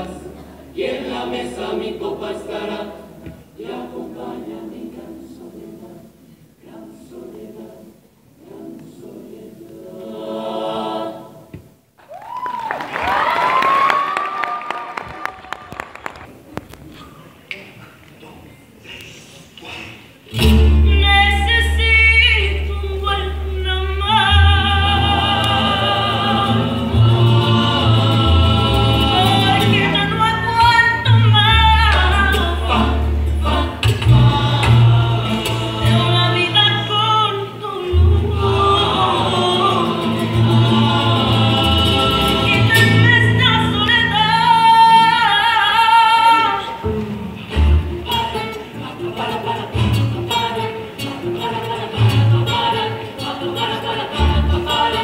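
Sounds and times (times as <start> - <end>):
people singing in harmony: 0.0 - 11.9, 19.6 - 55.0
guitars: 20.3 - 55.0.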